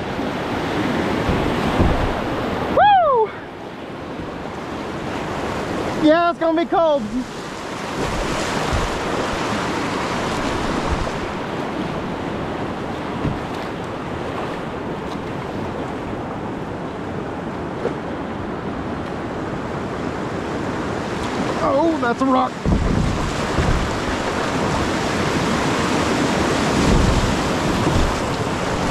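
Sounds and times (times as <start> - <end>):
river rapids rushing: 0.0 - 16.8, 20.4 - 28.9
wind buffeting microphone: 0.0 - 16.8, 21.0 - 28.9
low thumps: 1.1 - 2.7, 7.9 - 9.6, 13.1 - 13.8, 22.6 - 24.8, 26.8 - 28.9.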